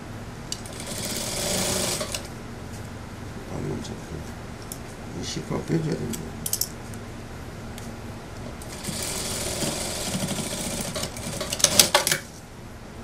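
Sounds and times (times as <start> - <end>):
sewing machine stitching: 0.6 - 2.3, 8.6 - 12.2.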